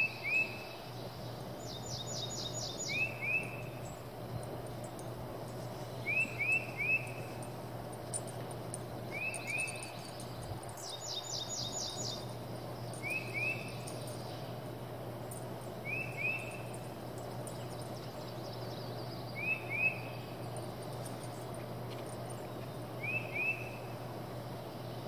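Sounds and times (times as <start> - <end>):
steady low hum: 0.0 - 25.0.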